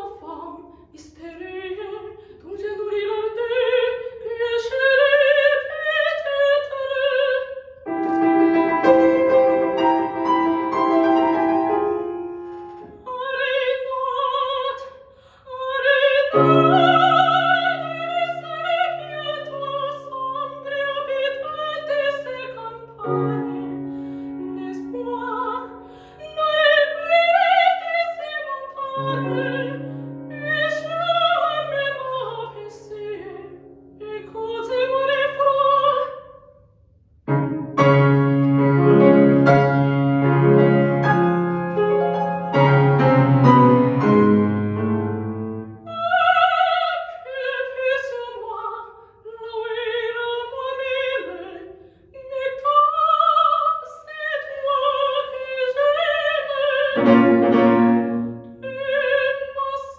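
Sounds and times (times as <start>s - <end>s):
soprano singing opera: 0.0s - 7.9s, 12.9s - 36.3s, 45.8s - 59.9s
grand piano: 1.4s - 14.8s, 15.6s - 36.1s, 37.2s - 48.7s, 52.4s - 59.9s.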